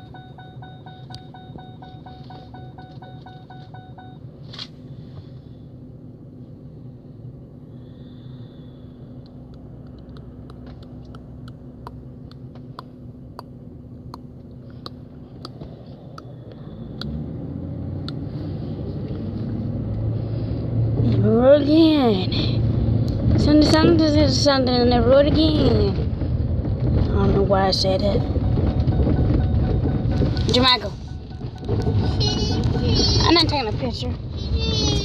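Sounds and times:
short beeps: 0.0 - 4.3, 28.2 - 33.3
car engine idling: 0.0 - 35.0.

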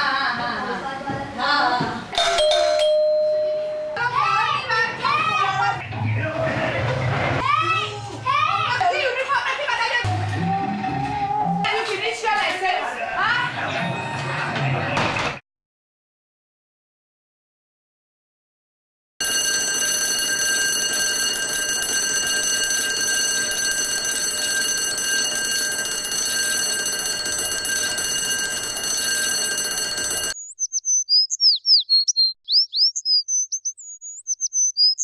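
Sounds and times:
warbling electronic chirping tone: 30.4 - 35.0.

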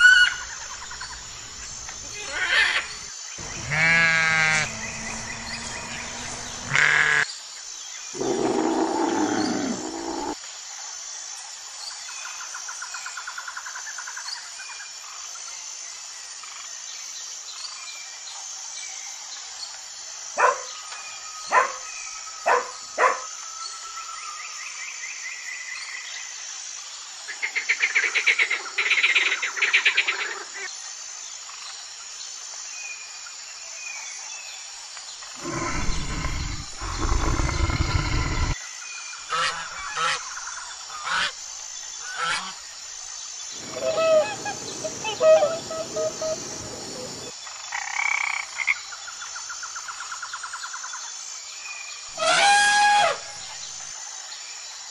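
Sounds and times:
sharp bird calls: 0.0 - 7.3, 8.2 - 10.4, 35.4 - 38.6, 43.6 - 47.3
steady high buzz: 2.8 - 7.2
loud deep animal call: 3.4 - 7.2, 8.2 - 10.4, 35.4 - 38.6, 43.6 - 47.3
bird trill: 43.6 - 47.3.

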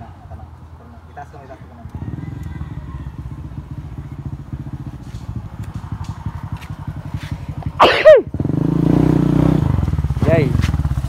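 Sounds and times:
loud sharp falling cry: 7.8 - 8.3.

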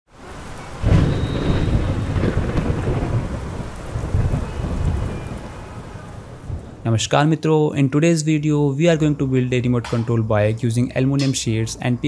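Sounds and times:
steady rain: 0.1 - 12.0
rumbling thunder: 0.7 - 7.1.

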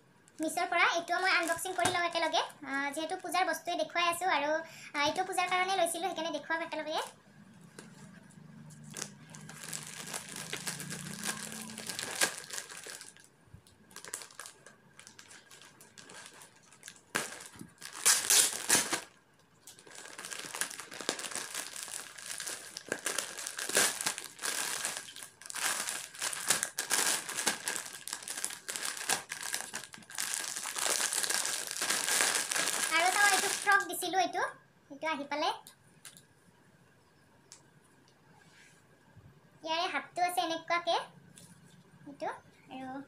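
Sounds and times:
packaging crinkling and tearing: 1.3 - 2.2, 8.7 - 33.9.

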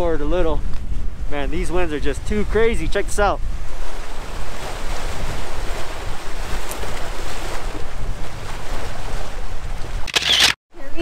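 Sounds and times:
wind buffeting microphone: 0.0 - 10.1
waves splashing against boulders: 3.6 - 10.1.

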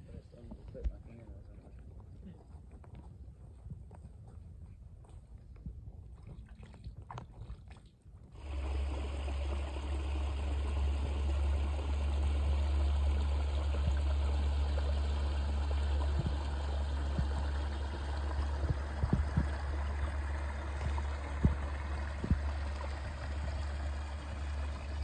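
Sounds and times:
faint steps and rustles: 0.2 - 6.0
creek water rushing over drop: 8.4 - 25.0
low rumble: 8.4 - 25.0.

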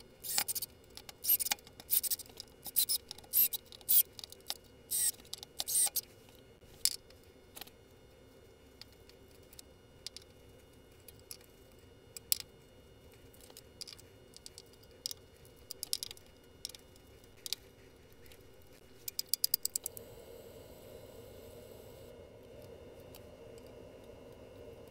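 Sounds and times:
small metal hardware clicking: 19.1 - 19.9.

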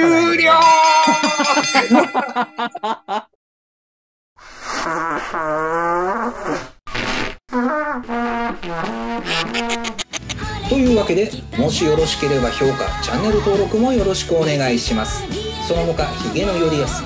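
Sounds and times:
buzzy trumpet toots: 4.6 - 10.4.

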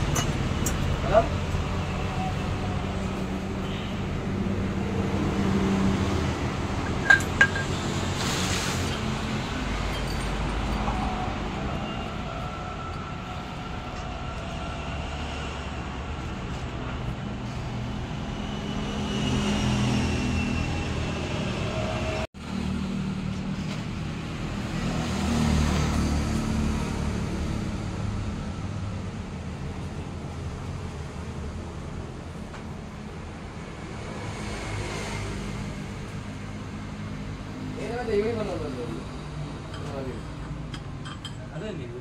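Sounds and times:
road traffic passing: 0.0 - 42.0.

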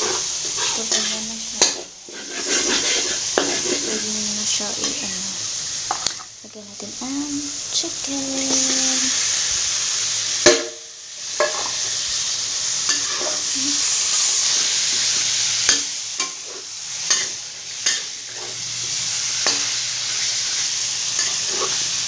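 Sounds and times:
metal spatula scraping a pot: 0.0 - 4.1, 11.3 - 11.9, 12.9 - 13.5, 15.4 - 18.7, 19.4 - 22.0
chicken sizzling in oil: 0.0 - 22.0.

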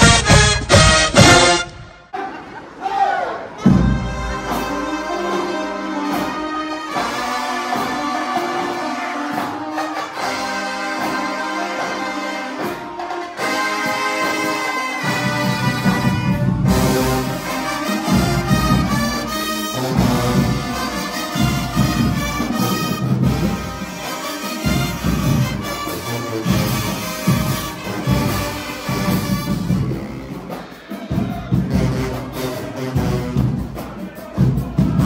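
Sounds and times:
marching band brass playing: 0.0 - 2.2, 3.2 - 35.0.

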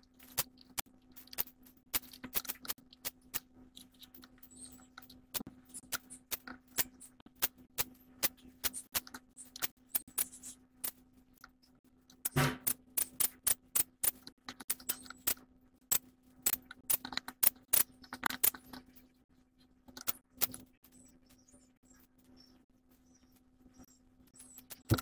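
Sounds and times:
loud knock: 12.4 - 12.7
sharp clicks and taps: 24.6 - 25.0.

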